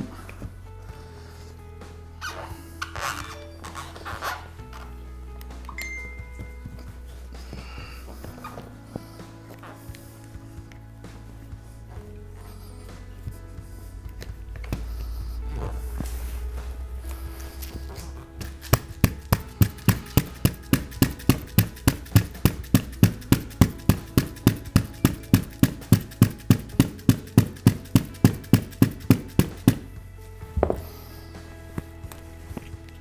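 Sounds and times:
mallet tapping rubber strip: 0:18.5 - 0:29.9.

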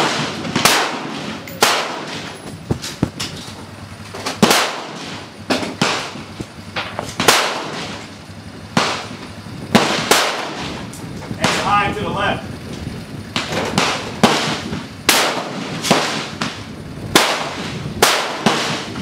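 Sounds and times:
gunshots with echo: 0:00.0 - 0:02.4, 0:04.3 - 0:06.4, 0:07.2 - 0:08.1, 0:08.7 - 0:11.9, 0:13.3 - 0:19.0.

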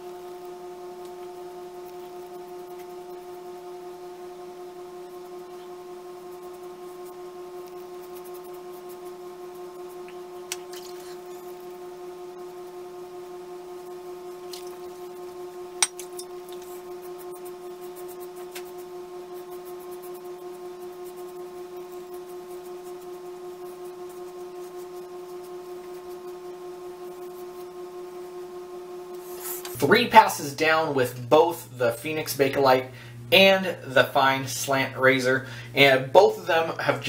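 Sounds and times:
steady humming tone: 0:00.0 - 0:37.0
razor scratching stubble: 0:04.9 - 0:11.7, 0:16.0 - 0:27.8, 0:29.2 - 0:32.4.

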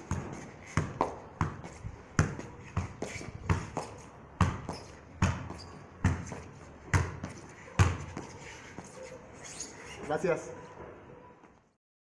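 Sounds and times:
ball thuds from juggling: 0:00.0 - 0:08.2.

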